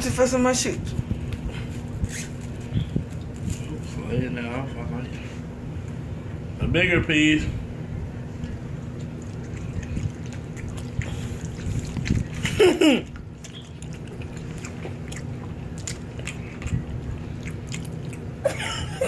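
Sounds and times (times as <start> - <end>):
people chewing gummy candy: 8.4 - 19.0
wet mouth clicks and smacks: 9.0 - 18.3.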